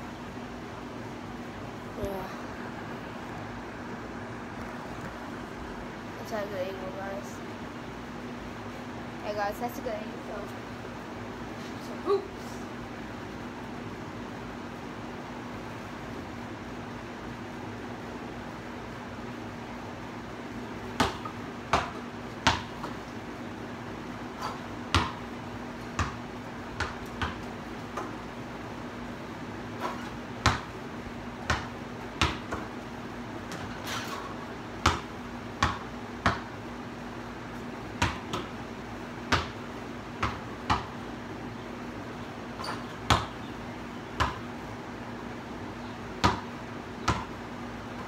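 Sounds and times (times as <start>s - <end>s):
steady low hum: 0.0s - 48.0s
basketball bouncing on concrete: 20.8s - 23.2s, 24.4s - 28.2s, 29.8s - 30.8s, 31.4s - 32.8s, 33.4s - 36.6s, 37.5s - 41.1s, 42.5s - 44.6s, 46.2s - 48.0s.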